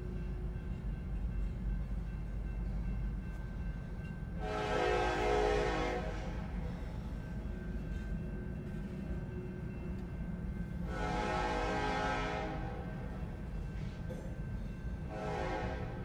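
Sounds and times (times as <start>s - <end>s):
locomotive air horn: 4.4s - 6.6s, 10.9s - 12.9s, 15.1s - 16.0s.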